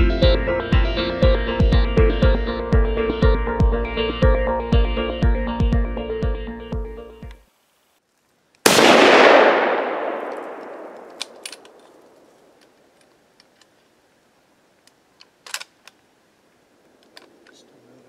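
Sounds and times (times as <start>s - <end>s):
rustle: 7.3s - 18.0s
rifle shot: 8.6s - 12.6s
faint clicks: 10.2s - 13.9s, 17.0s - 17.8s.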